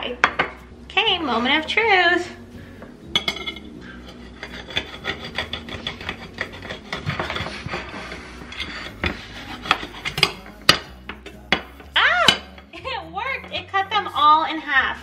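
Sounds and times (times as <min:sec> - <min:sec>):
knife rasping against plates: 0:03.2 - 0:12.7.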